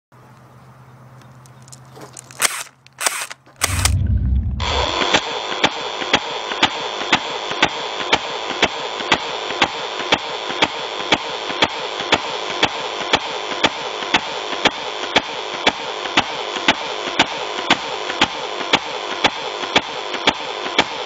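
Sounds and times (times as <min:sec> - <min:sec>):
toy gun firing clicks: 0:02.2 - 0:04.0
motor whirring hum: 0:02.4 - 0:05.2.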